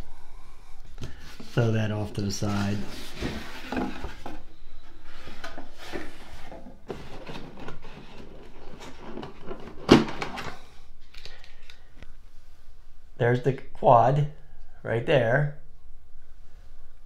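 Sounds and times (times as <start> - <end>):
packaging rustling and scraping: 1.1 - 11.7.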